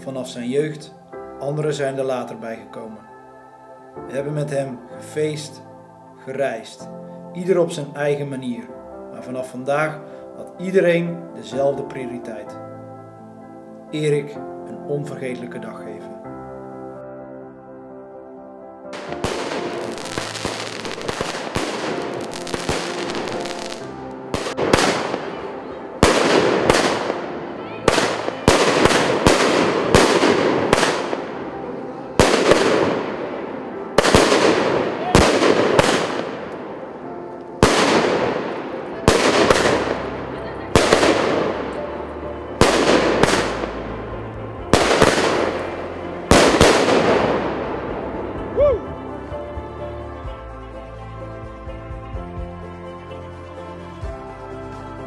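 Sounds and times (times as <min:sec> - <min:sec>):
fireworks crackling and banging: 0:19.0 - 0:31.5, 0:32.2 - 0:36.8, 0:37.6 - 0:41.8, 0:42.6 - 0:43.8, 0:44.7 - 0:47.7.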